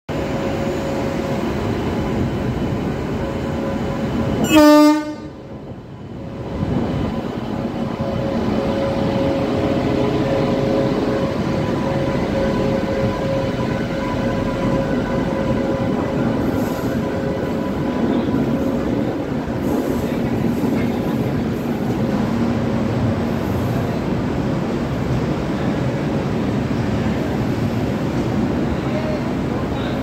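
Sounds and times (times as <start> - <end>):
electric locomotive hum and whine: 0.1 - 30.0
locomotive horn blast: 4.4 - 5.4.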